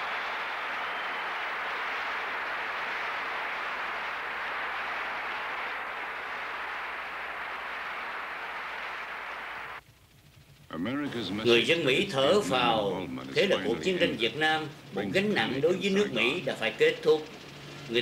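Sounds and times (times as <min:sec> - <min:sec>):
large audience applauding: 0:00.0 - 0:09.8.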